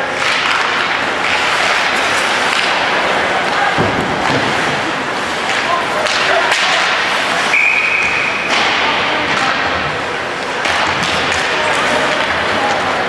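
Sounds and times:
ice hockey game noise: 0.0s - 13.0s
referee's whistle: 7.5s - 8.4s.

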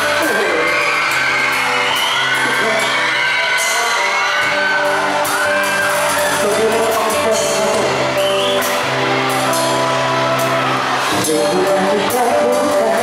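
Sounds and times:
electric guitars: 0.0s - 13.0s
man singing: 6.3s - 8.3s, 11.1s - 13.0s.

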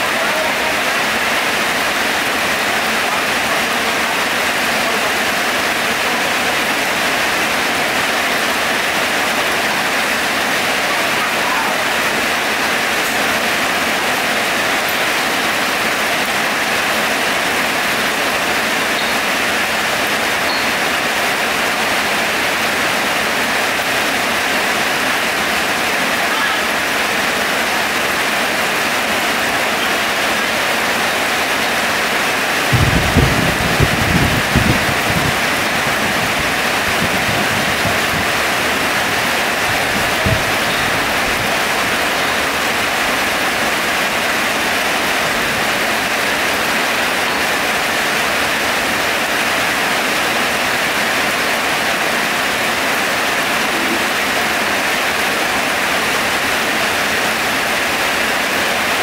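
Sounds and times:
heavy rain: 0.0s - 59.0s
low thumps: 32.7s - 41.6s.

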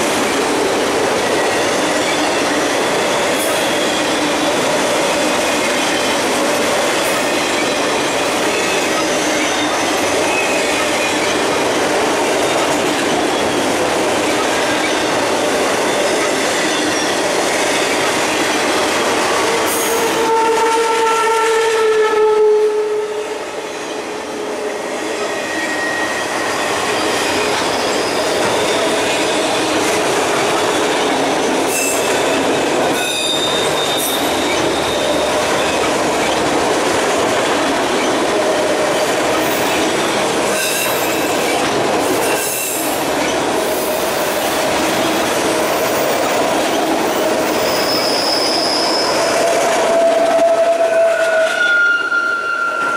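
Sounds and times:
train wheels rumbling on rail: 0.0s - 52.9s
wheel squeal: 25.3s - 29.5s, 33.0s - 36.4s, 47.1s - 49.6s, 50.5s - 52.9s.

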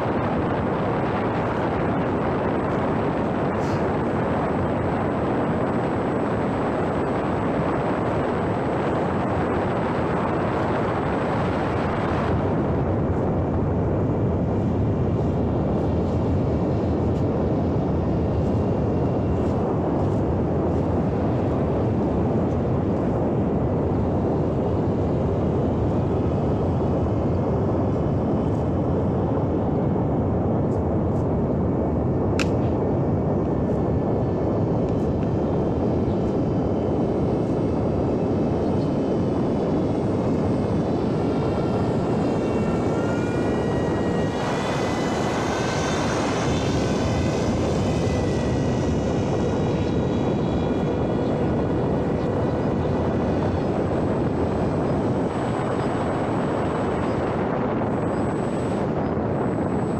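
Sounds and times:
rush of air: 0.0s - 27.0s
motor and propeller whine: 0.0s - 59.9s.

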